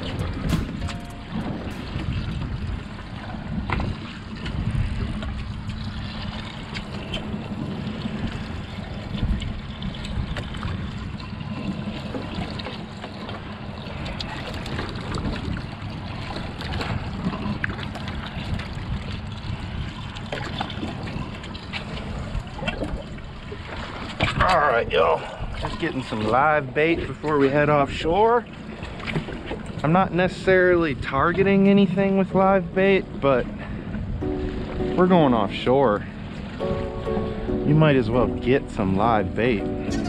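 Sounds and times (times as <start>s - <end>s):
boat engine humming: 0.0s - 40.0s
water sloshing against hull: 0.0s - 40.0s.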